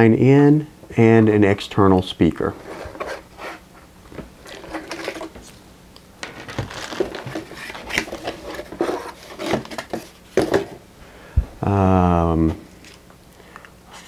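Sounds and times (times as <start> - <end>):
cardboard rubbing and scraping: 2.5 - 3.8, 4.4 - 5.5, 6.4 - 10.7.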